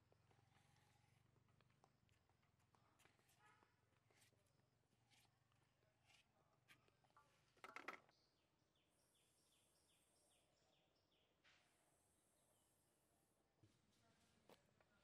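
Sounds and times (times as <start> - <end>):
bird chirping: 8.1 - 11.4.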